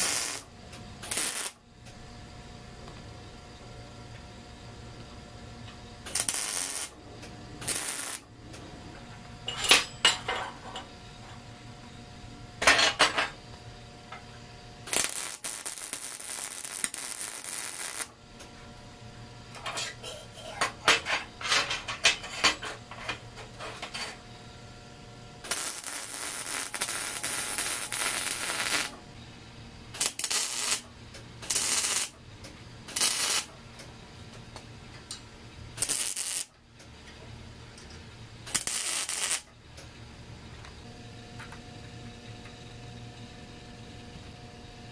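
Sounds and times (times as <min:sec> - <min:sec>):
welding crackling hiss: 0:00.0 - 0:01.6, 0:06.0 - 0:08.6, 0:14.8 - 0:18.2, 0:25.4 - 0:29.0, 0:29.9 - 0:32.2, 0:32.9 - 0:33.6, 0:35.8 - 0:36.5, 0:38.4 - 0:39.5.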